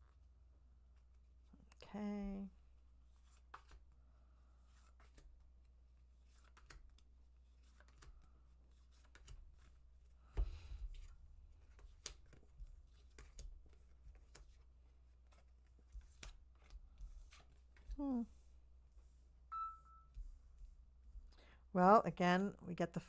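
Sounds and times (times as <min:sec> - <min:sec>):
cards snapping and tapping: 0:06.4 - 0:07.0, 0:10.4 - 0:14.6.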